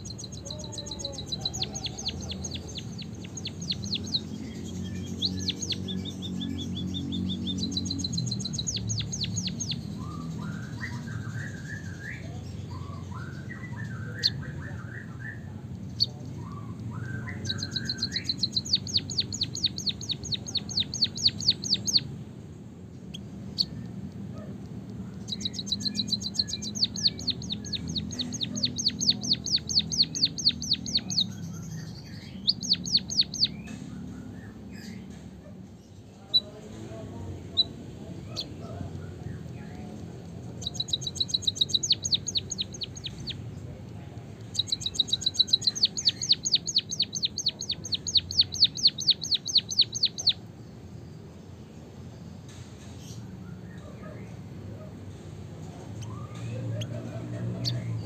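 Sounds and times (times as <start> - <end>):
bird warbling lower phrases: 0.0 - 5.9
bird singing rapid high notes: 0.0 - 22.2, 25.1 - 35.0, 40.4 - 43.6, 44.4 - 50.6.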